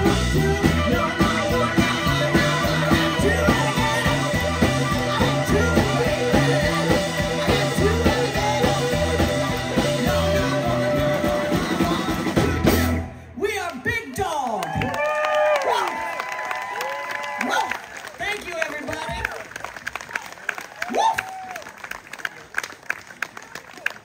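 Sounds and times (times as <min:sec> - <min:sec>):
woman singing: 0:00.0 - 0:12.4
harmonica: 0:00.0 - 0:13.2
electric bass line: 0:00.0 - 0:13.3
electric guitar: 0:00.0 - 0:13.3
keyboard: 0:00.0 - 0:13.3
drums: 0:00.0 - 0:14.0.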